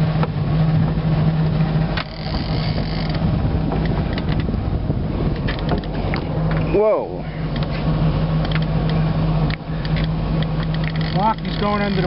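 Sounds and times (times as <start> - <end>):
boat engine idling: 0.0 - 12.0
fishing reel drag paying out: 2.0 - 3.2, 9.9 - 12.0.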